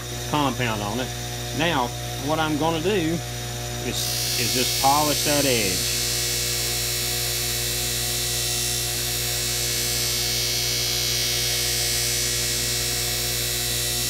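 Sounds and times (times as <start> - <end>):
bench grinder running: 0.0 - 14.0
knife polished on buffing wheel: 3.7 - 14.0.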